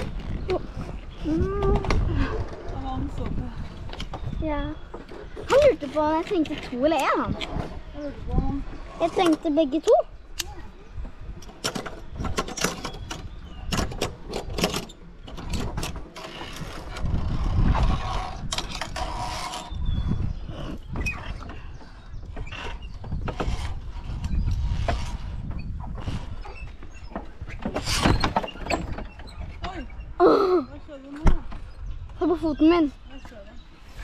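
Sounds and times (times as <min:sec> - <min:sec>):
carabiners and pulley on cable: 0:08.7 - 0:10.0, 0:11.4 - 0:30.2.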